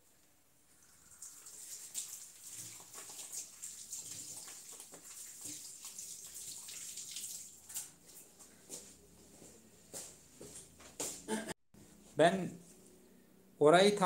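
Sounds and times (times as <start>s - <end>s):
tap water splashing into sink: 0.8s - 8.0s.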